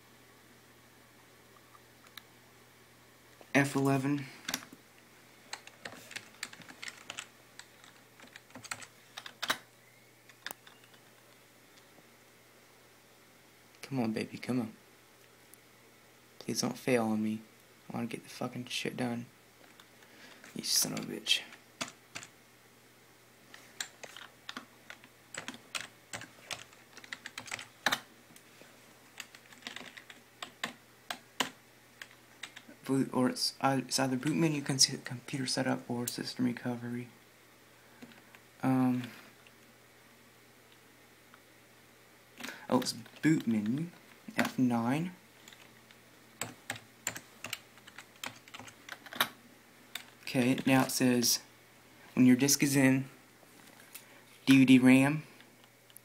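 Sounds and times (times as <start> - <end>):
computer keyboard keystrokes: 5.5 - 9.7, 21.8 - 22.3, 23.8 - 28.1, 29.2 - 32.7, 46.4 - 49.4.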